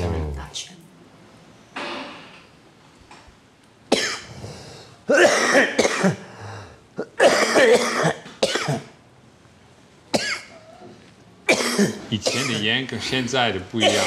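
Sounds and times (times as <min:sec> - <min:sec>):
man coughing: 0:03.9 - 0:04.4, 0:05.1 - 0:06.4, 0:07.0 - 0:08.9, 0:10.2 - 0:10.6, 0:11.5 - 0:13.2, 0:13.8 - 0:14.0.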